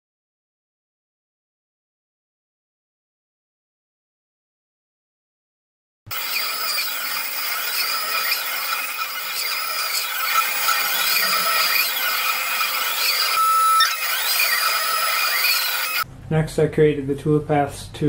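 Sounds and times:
milling machine cutting whine: 6.1 - 16.0.

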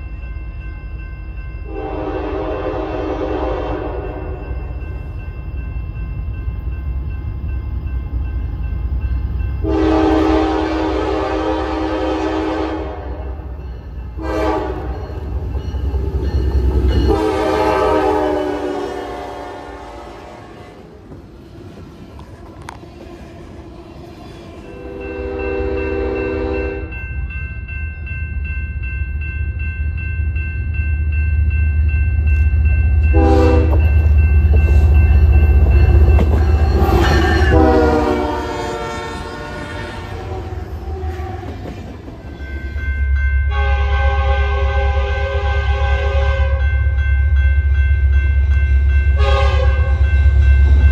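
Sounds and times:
train air horn blasts: 1.7 - 4.4, 9.6 - 13.5, 14.2 - 15.1, 17.0 - 20.9, 24.7 - 26.9, 33.1 - 33.9, 36.8 - 41.5, 43.5 - 46.6, 49.2 - 50.0
freight cars rolling on rails: 31.8 - 43.2.

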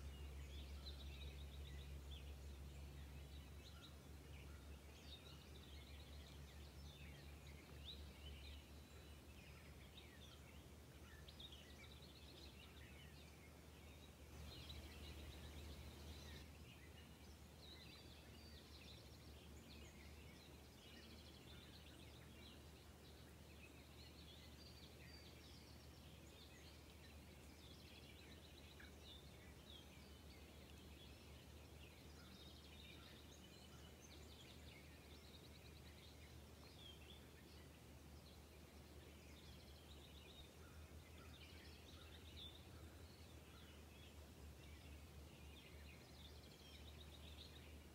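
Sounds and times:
birds chirping and trilling: 0.0 - 22.8.

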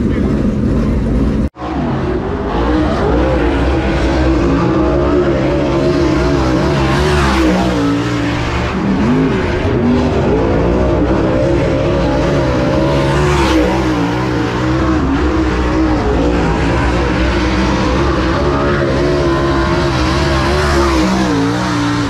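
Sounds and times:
race car engines running hard: 0.0 - 22.0.

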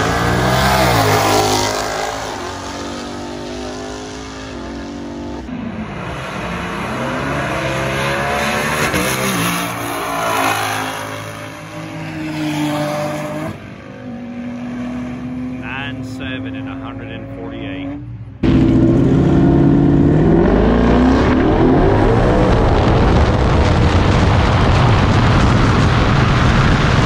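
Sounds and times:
car engine accelerating hard: 0.0 - 27.0.

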